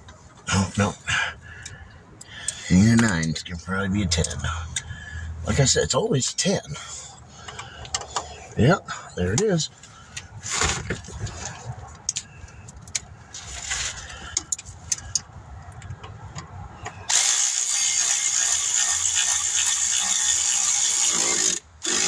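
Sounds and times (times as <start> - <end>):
loud steady whirring: 17.0 - 22.0
ratchet clicking: 17.1 - 22.0.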